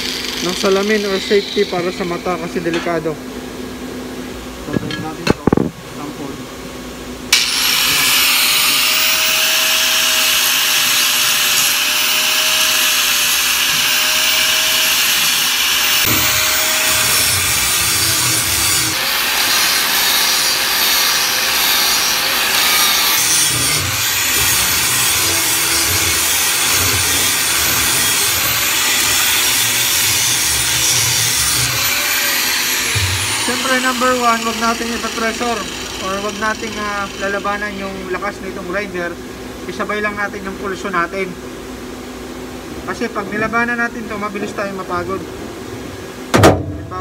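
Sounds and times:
angle grinder motor whining: 0.0 - 2.9, 7.3 - 38.0.

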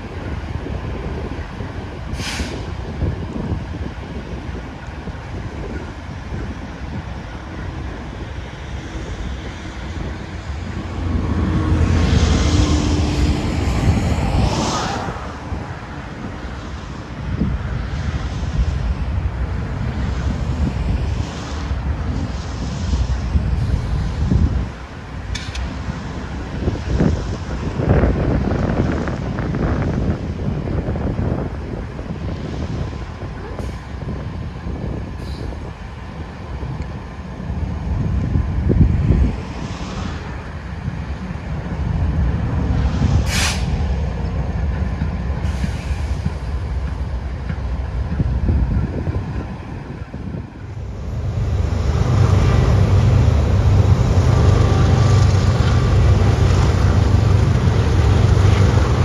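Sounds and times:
diesel locomotive engine rumble: 0.0 - 59.0
wind buffeting microphone: 0.0 - 59.0
rush of hiss: 2.1 - 2.8, 42.7 - 46.8.

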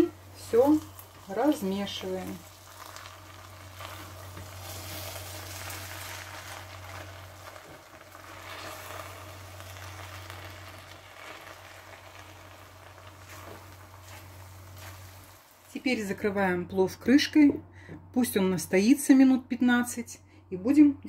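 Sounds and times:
spatula scraping rice in pan: 13.1 - 15.4.

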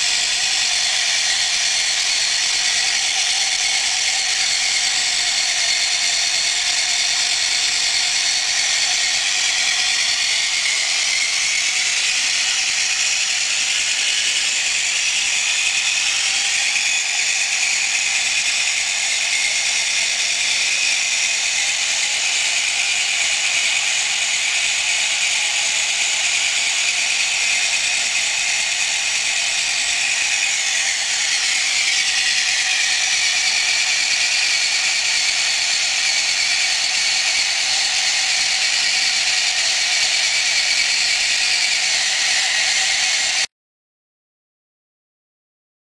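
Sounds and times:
small electric motor whine: 0.0 - 43.5
plastic gear chatter: 26.1 - 43.4.

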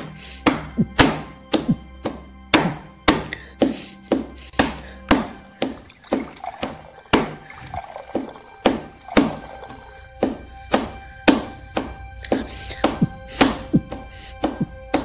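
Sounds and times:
water running into steel tumbler: 5.8 - 10.1.

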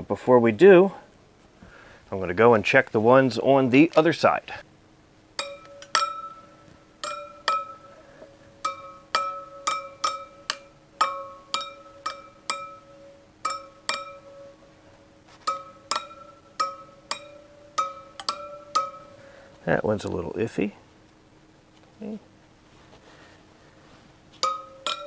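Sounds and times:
screwdriver tapping metal spokes: 5.4 - 8.0, 8.6 - 14.6, 15.3 - 19.2, 24.4 - 25.0.

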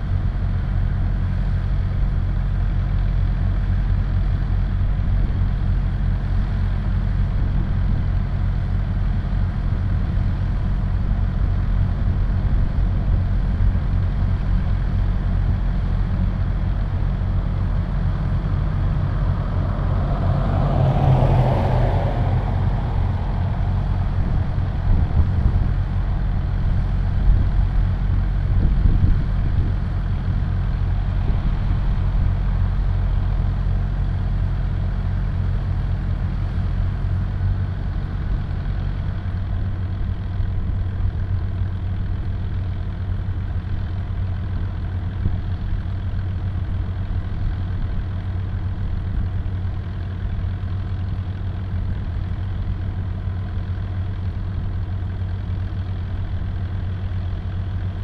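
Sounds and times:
vehicle engine idling: 0.0 - 58.0
loud rushing noise: 17.9 - 26.2.

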